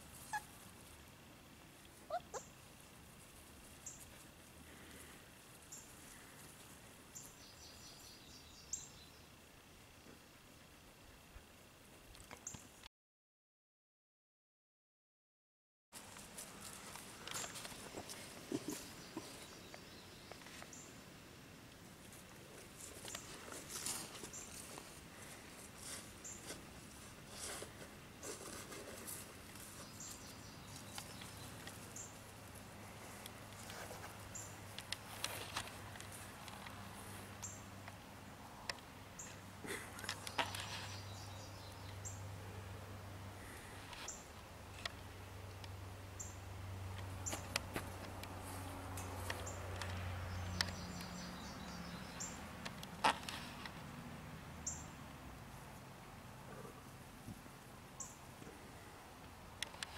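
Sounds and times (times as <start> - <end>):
puppy rustling through grass: 16.0 - 19.6, 21.9 - 37.4.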